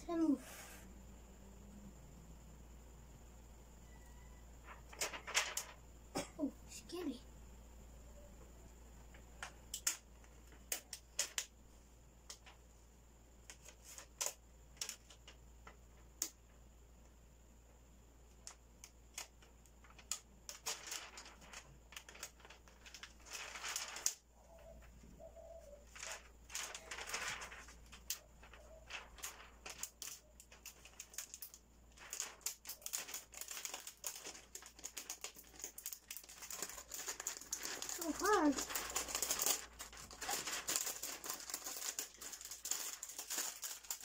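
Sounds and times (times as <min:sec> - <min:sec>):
plastic film crackling: 0:04.7 - 0:05.8, 0:18.5 - 0:24.8, 0:25.8 - 0:44.0.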